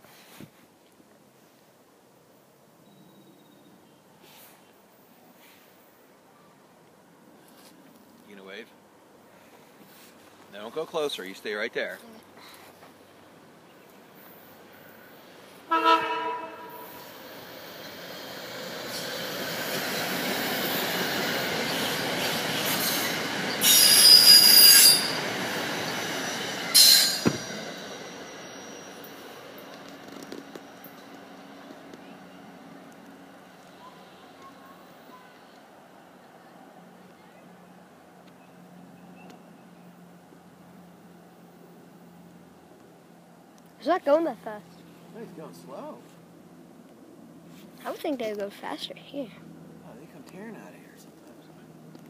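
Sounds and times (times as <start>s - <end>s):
train rolling past: 12.7s - 52.0s
wheel squeal against rail: 22.6s - 29.4s.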